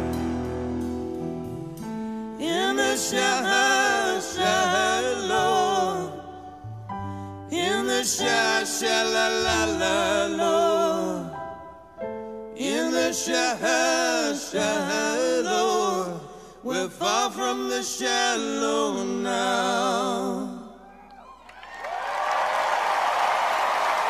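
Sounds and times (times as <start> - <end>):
piano: 0.0 - 24.0
woman singing wordless vocal: 2.4 - 6.5, 7.5 - 11.4.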